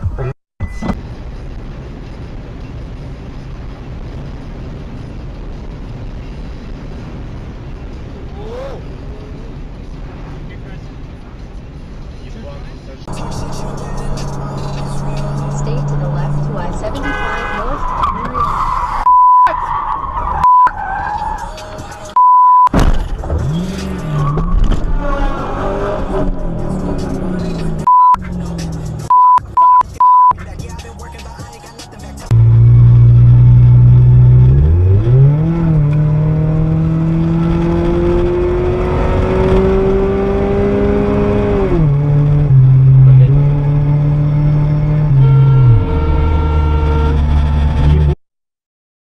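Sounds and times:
car road and engine noise: 0:00.0 - 0:48.2
censor beep: 0:00.6 - 0:01.0, 0:19.0 - 0:19.6, 0:20.4 - 0:20.8, 0:22.2 - 0:22.8, 0:27.4 - 0:28.2, 0:29.1 - 0:30.4
car crash rumbling and scraping: 0:22.7 - 0:29.0.

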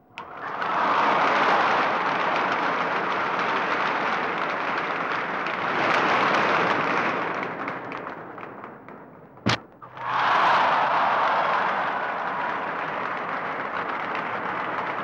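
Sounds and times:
crowd clapping: 0:00.2 - 0:08.9, 0:09.9 - 0:15.0
crowd shouting and cheering: 0:09.5 - 0:15.0.

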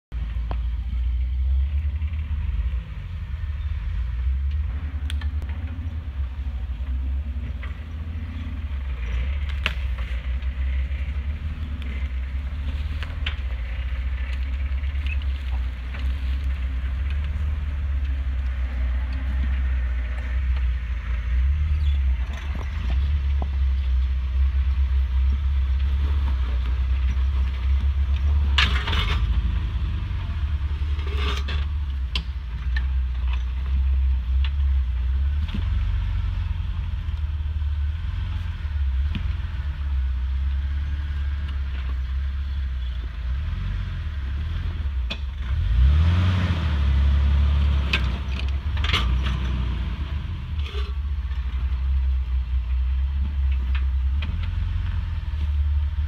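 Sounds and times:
engine running at low revs: 0:00.1 - 0:56.0
sharp clicks and knocks: 0:31.0 - 0:33.8.

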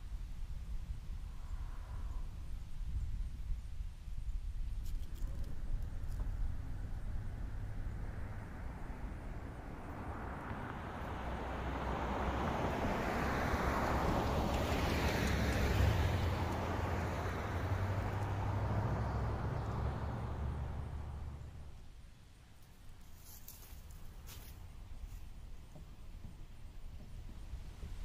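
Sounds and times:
steady low rumble: 0:00.0 - 0:15.4
car driving past: 0:05.5 - 0:21.8.

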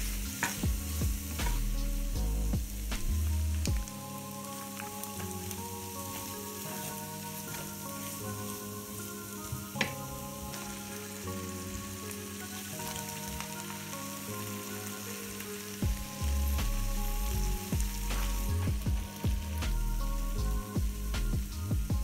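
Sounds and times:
background music with deep bass: 0:00.0 - 0:22.0
pasta sizzling in a pan: 0:00.0 - 0:22.0.

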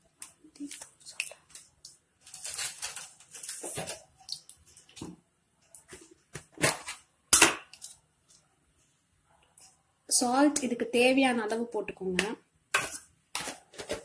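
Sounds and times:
kitchen containers and utensils handled: 0:00.1 - 0:08.5, 0:12.1 - 0:14.0.

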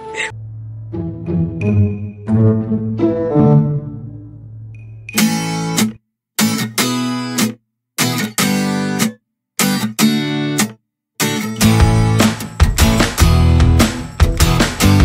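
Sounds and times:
strummed guitar chords: 0:11.2 - 0:15.0.

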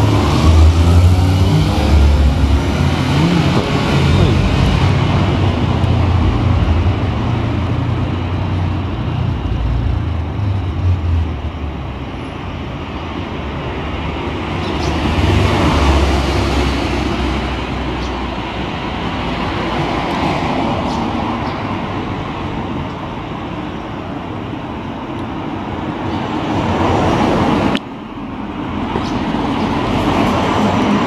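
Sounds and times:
cars passing close by: 0:00.0 - 0:31.0.

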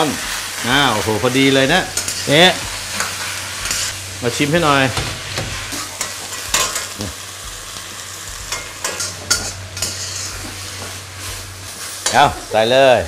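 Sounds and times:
leaves and sauce sizzling in wok: 0:00.0 - 0:13.0
metal spatula scraping wok: 0:00.2 - 0:04.1, 0:08.3 - 0:12.6.

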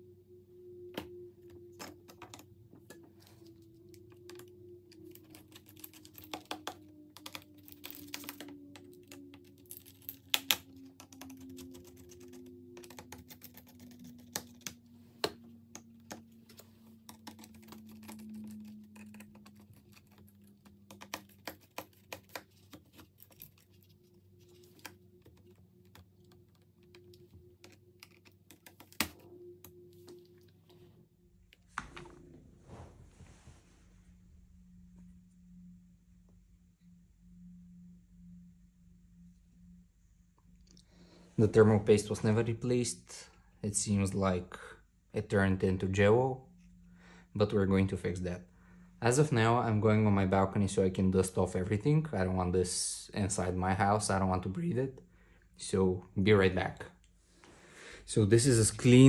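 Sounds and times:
faint low hum: 0:00.0 - 0:59.0
laptop parts clicking and scraping: 0:01.8 - 0:29.2.

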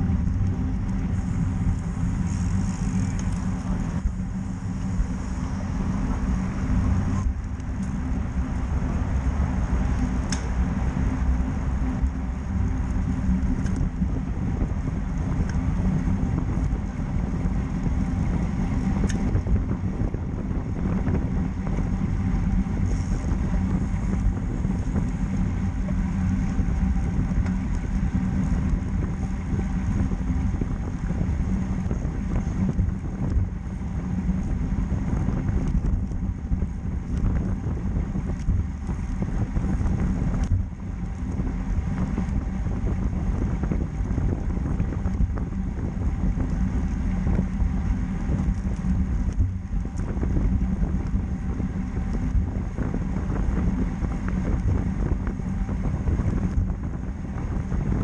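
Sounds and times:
low road rumble: 0:00.0 - 0:58.0
wind on microphone: 0:00.0 - 0:58.0
faint clicks: 0:10.0 - 0:10.5.

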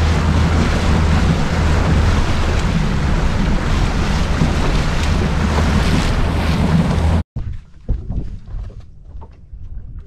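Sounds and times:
outboard engine drone: 0:00.0 - 0:07.3
rushing wind and water: 0:00.0 - 0:08.6
wind buffeting microphone: 0:00.0 - 0:10.0.

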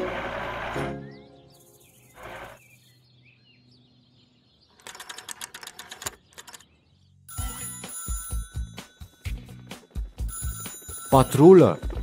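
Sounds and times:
telephone bell ringing: 0:07.3 - 0:12.0.

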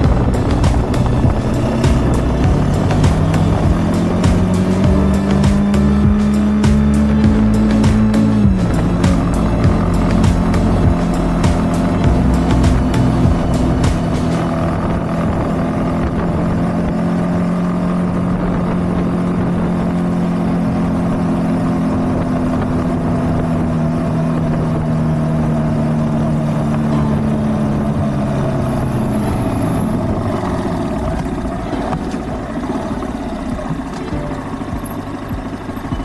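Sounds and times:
motorcycle engine cruising: 0:00.0 - 0:36.0.

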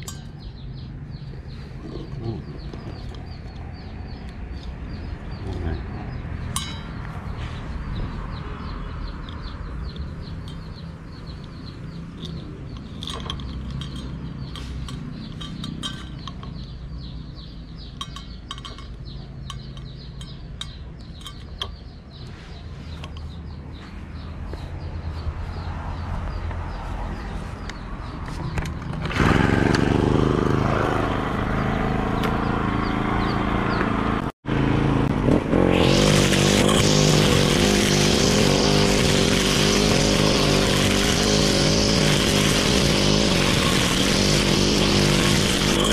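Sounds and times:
small metallic clinks: 0:00.0 - 0:00.7, 0:06.5 - 0:07.1, 0:09.2 - 0:17.1, 0:17.8 - 0:22.0.

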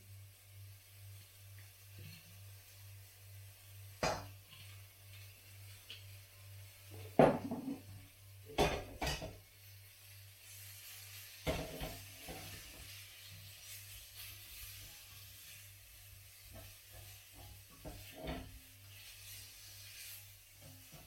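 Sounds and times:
frying sizzle: 0:00.0 - 0:21.0
utensil knocking against a wok: 0:04.0 - 0:04.4, 0:07.2 - 0:07.9, 0:08.5 - 0:09.4.

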